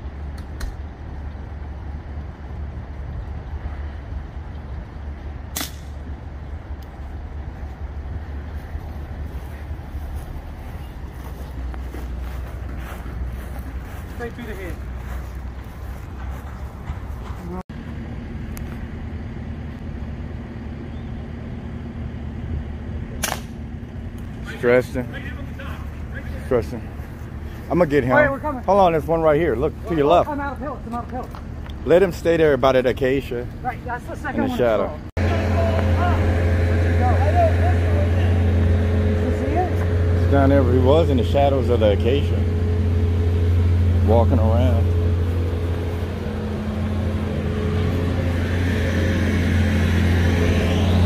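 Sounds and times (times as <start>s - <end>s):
low rumble on microphone: 0.0s - 25.2s, 35.2s - 51.0s
low mechanical hum: 0.0s - 51.0s
air rifle shot: 5.5s - 6.0s, 23.2s - 23.6s.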